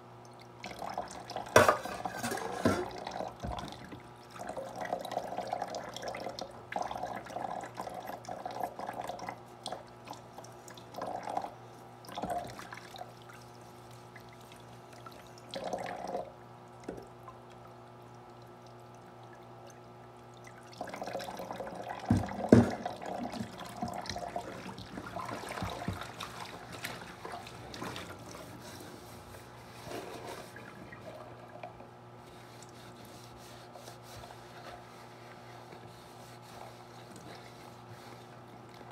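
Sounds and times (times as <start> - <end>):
faucet water splashing over hands: 17.2 - 28.5.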